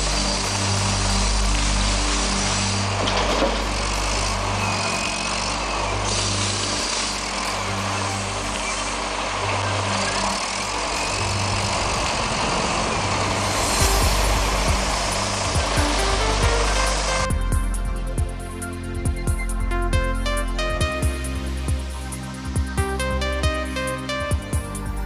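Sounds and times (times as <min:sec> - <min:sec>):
rush of machinery: 0:00.0 - 0:17.4
diesel engine running: 0:00.0 - 0:25.0.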